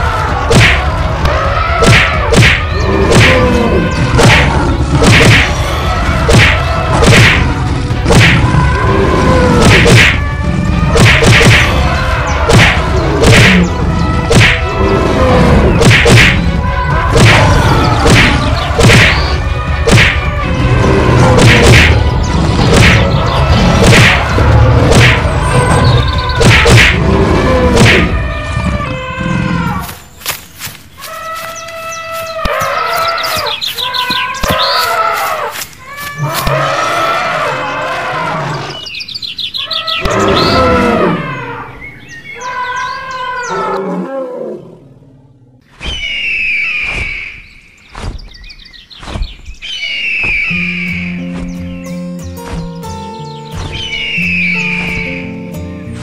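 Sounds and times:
cartoon whack and thump hits: 0.5 - 0.8, 1.8 - 3.4, 4.2 - 5.5, 6.3 - 7.4, 8.1 - 8.4, 9.6 - 10.2, 11.0 - 11.7, 12.5 - 13.6, 14.3 - 14.6, 15.8 - 16.4, 17.2 - 17.4, 18.0 - 19.2, 19.9 - 20.2, 21.4 - 22.0, 22.7 - 23.1, 24.9 - 25.2, 26.4 - 27.0, 27.8 - 28.1.

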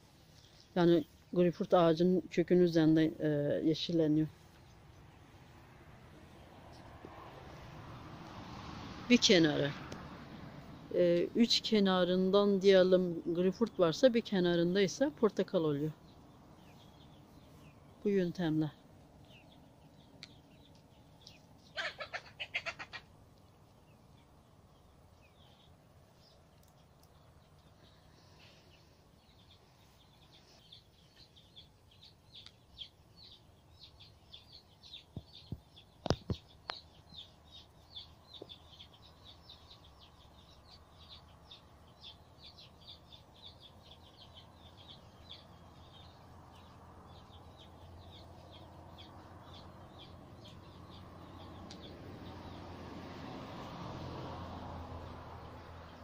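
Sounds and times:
small bird chirping: 10.8 - 52.6.

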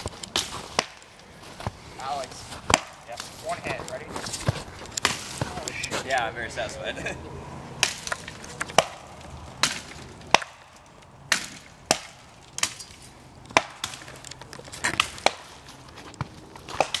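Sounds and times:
axe chopping wood: 0.0 - 1.1, 2.6 - 5.7, 7.8 - 17.0.

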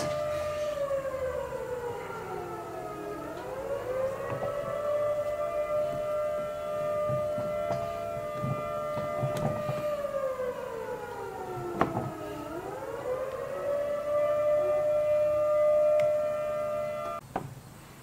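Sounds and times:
siren-like whine: 0.0 - 17.2.

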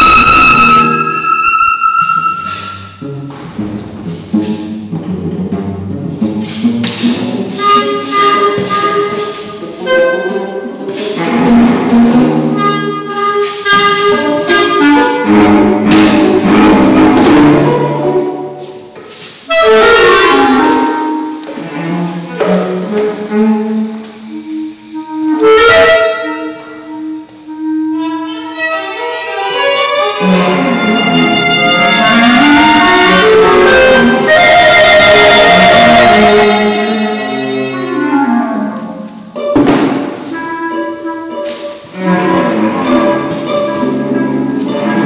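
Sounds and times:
woodwind and strings ensemble: 0.0 - 3.3, 4.1 - 18.6, 19.5 - 39.6, 40.3 - 45.0
short sharp hit: 39.5 - 40.4.

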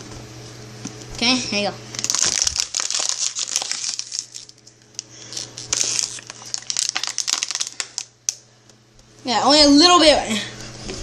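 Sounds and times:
plastic bottle crinkling: 1.9 - 8.1.

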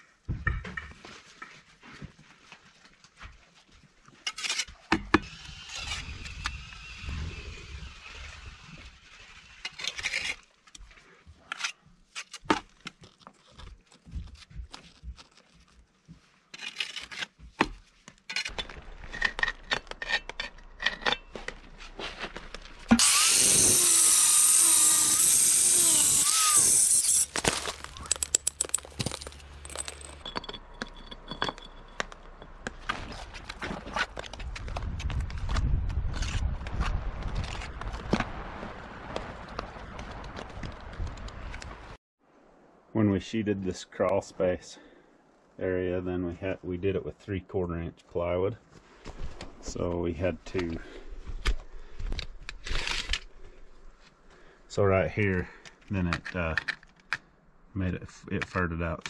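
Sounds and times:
power saw cutting stone: 22.9 - 27.6
stones knocking and clicking: 27.2 - 35.7.

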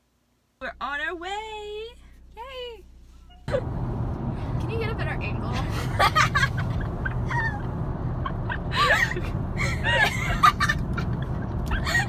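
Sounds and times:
car cabin road rumble: 0.6 - 12.0
women laughing: 5.7 - 12.0.

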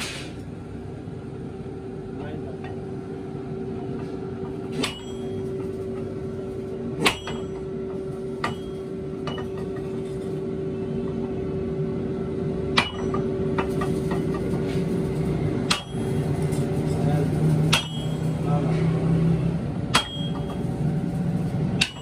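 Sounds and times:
steady mechanical hum: 0.0 - 22.0
hammer striking iron on anvil: 4.4 - 6.0, 7.0 - 9.9, 12.7 - 14.6, 15.6 - 16.2, 17.6 - 18.5, 19.9 - 20.7, 21.8 - 22.0.

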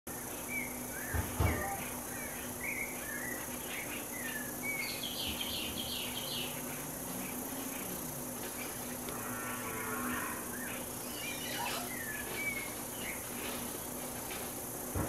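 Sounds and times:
birds chirping and whistling: 0.5 - 6.7, 10.5 - 13.4.

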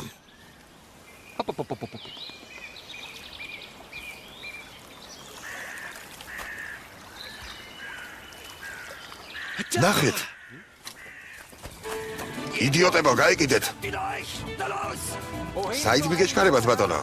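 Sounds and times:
songbirds chirping and whistling: 0.0 - 13.2.

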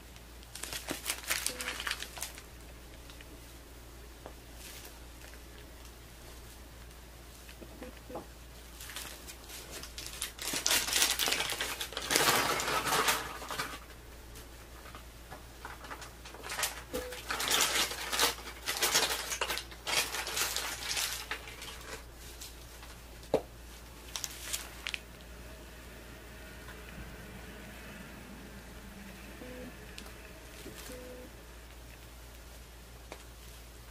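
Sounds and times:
plastic piping bag crinkling: 0.0 - 3.6, 4.5 - 7.6, 8.5 - 25.4.

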